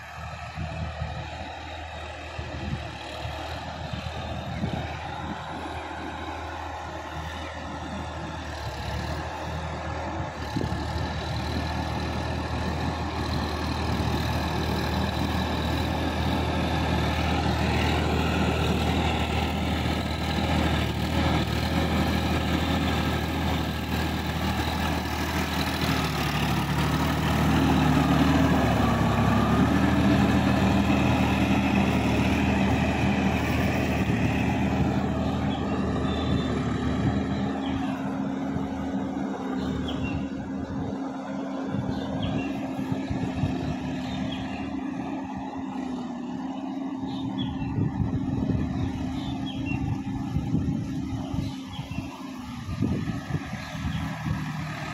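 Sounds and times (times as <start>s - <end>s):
tractor diesel engine running: 0.0s - 54.9s.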